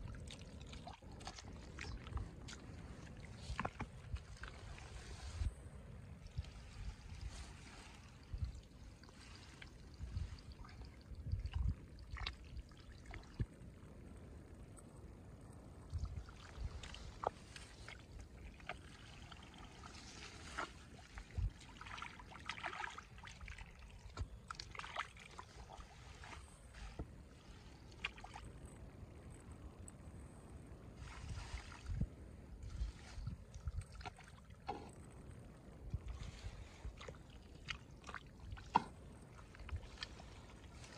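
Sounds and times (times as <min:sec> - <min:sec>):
hands squelching in wet mud: 0:00.0 - 0:05.5, 0:16.3 - 0:28.5, 0:35.9 - 0:40.9
water splashing and dribbling: 0:00.0 - 0:14.0, 0:15.6 - 0:29.9, 0:31.0 - 0:40.9.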